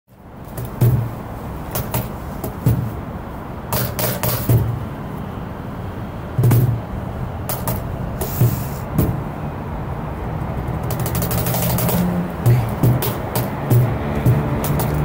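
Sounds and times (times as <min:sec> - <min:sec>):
steady hiss: 0:00.2 - 0:10.0
drum thuds: 0:00.5 - 0:03.1, 0:03.7 - 0:05.0, 0:06.3 - 0:09.4, 0:10.4 - 0:15.0.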